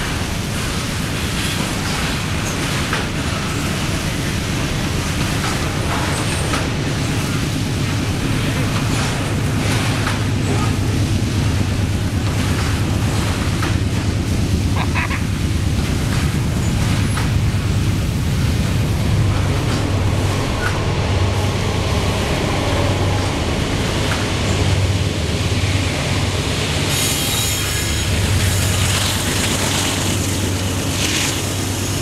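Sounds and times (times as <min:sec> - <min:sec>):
train wheels rumbling on rails: 0:00.0 - 0:32.0
water spraying: 0:27.8 - 0:32.0.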